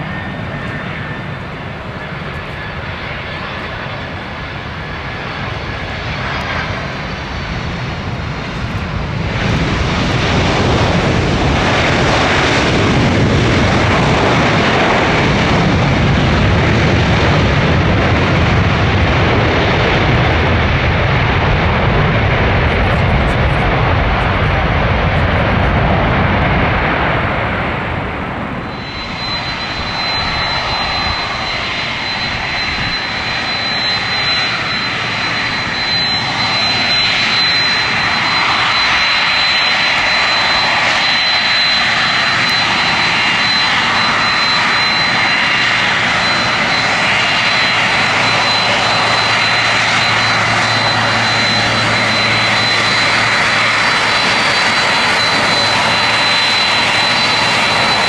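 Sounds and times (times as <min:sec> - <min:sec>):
jet engines running: 0:00.0 - 0:58.0
high thin whine: 0:28.6 - 0:58.0.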